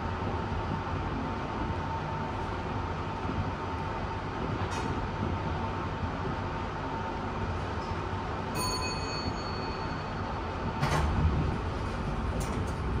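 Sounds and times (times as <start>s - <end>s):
lift rumbling: 8.6s - 13.0s
lift door sliding open: 10.7s - 13.0s.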